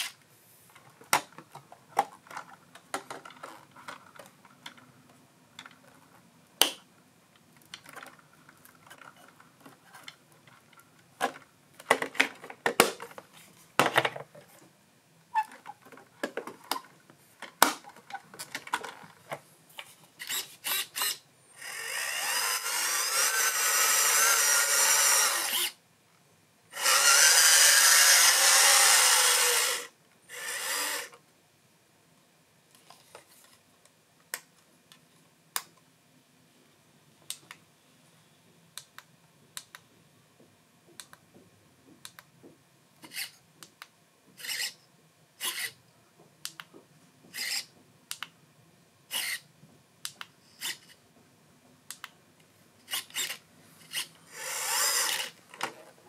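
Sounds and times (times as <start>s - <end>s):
small electric motor whirring: 20.2s - 25.8s, 26.7s - 31.2s, 44.4s - 44.8s, 45.4s - 45.7s, 47.4s - 47.7s, 49.1s - 49.4s, 52.9s - 55.4s.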